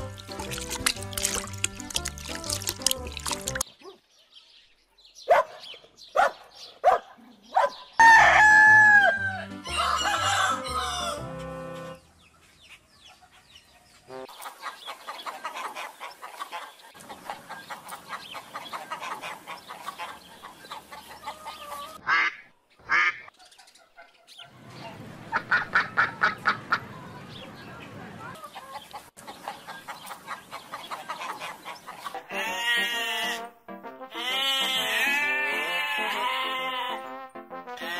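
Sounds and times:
rooster crowing: 8.0s - 11.3s
hens clucking: 14.3s - 33.4s, 34.3s - 37.0s.

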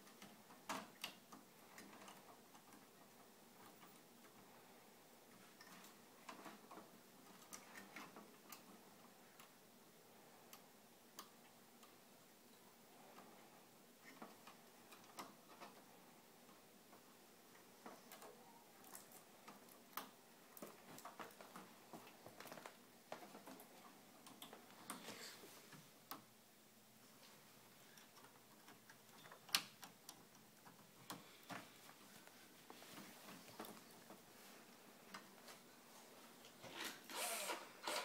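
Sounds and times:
clicks and rattles of cables: 17.8s - 25.2s.

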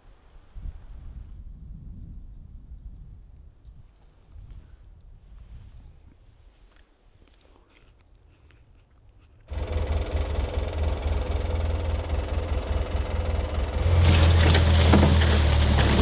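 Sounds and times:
vehicle engine running: 9.5s - 16.0s.

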